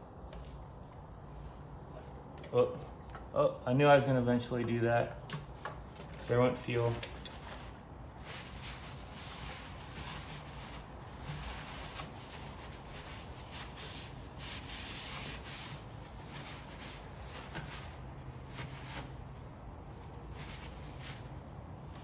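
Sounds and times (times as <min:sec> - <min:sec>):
rubbing and scraping handling noise: 0:05.4 - 0:22.0.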